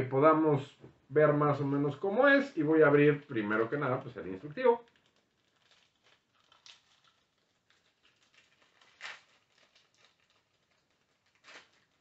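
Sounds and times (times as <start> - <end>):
plastic bag crinkling: 4.6 - 12.0.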